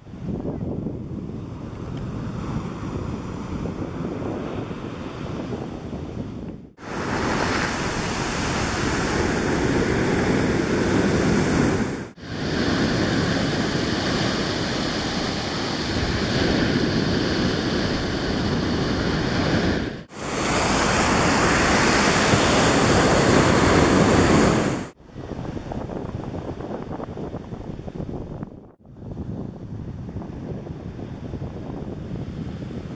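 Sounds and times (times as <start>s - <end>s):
wind on microphone: 0.0s - 32.9s
surf breaking on pebble beach: 6.8s - 25.0s.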